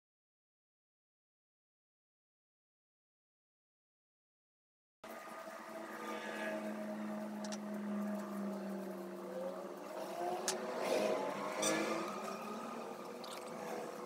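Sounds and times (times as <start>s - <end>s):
steady motor drone: 5.1s - 14.0s.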